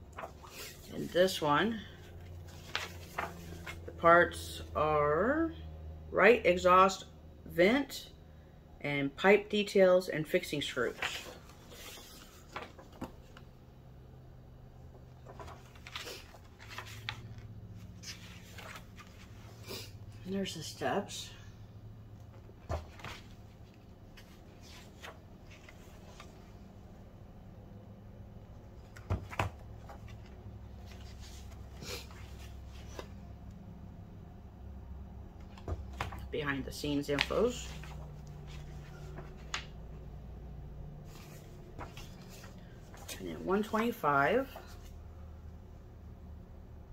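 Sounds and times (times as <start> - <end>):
page rustling: 0.0 - 1.4, 2.2 - 3.9, 10.8 - 13.5, 14.9 - 19.6, 22.3 - 26.6, 28.8 - 33.2, 35.4 - 40.0, 41.0 - 45.0.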